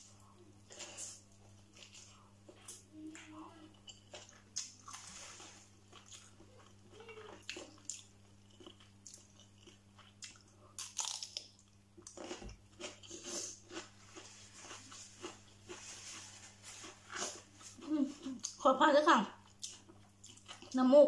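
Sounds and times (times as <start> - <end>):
cucumber crunching being chewed: 3.8 - 18.6, 19.4 - 20.8.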